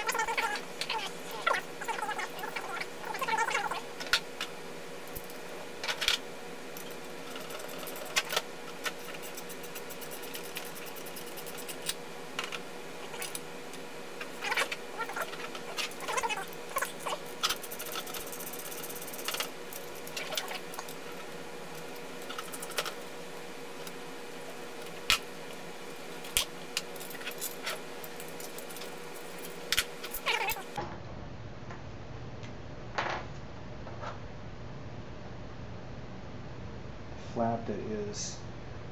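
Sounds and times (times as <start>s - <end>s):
steady faint hum: 0.0s - 38.9s
metal parts and tools clicking: 14.2s - 21.0s.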